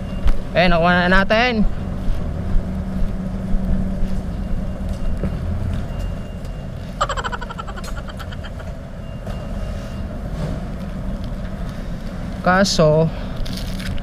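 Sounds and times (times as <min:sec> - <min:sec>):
traffic rumble: 0:00.0 - 0:14.0.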